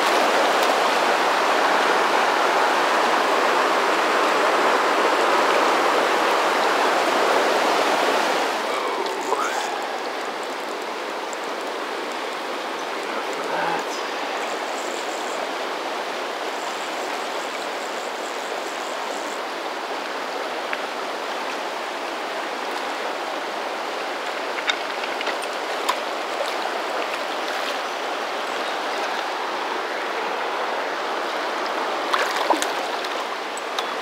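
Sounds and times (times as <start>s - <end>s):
river water rushing over rocks: 0.0s - 34.0s
small splashes: 32.1s - 33.3s.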